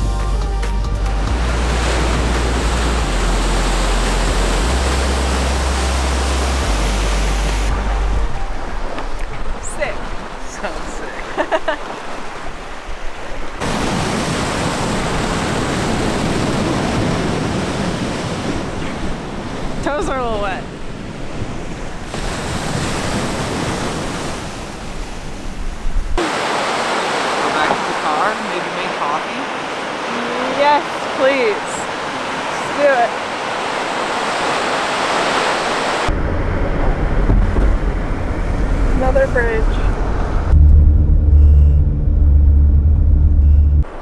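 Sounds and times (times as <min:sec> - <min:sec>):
waves breaking: 0:01.2 - 0:41.1
wind on microphone: 0:01.4 - 0:27.7, 0:29.0 - 0:44.0.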